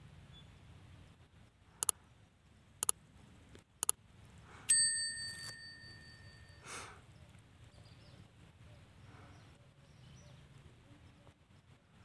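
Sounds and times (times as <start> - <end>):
bright bell ding: 4.7 - 6.6.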